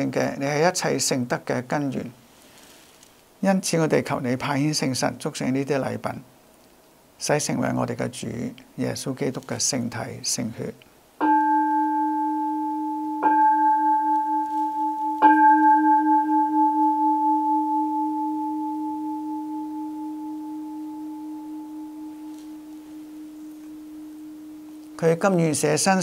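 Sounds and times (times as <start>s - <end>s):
altar bell ringing: 11.2s - 25.6s.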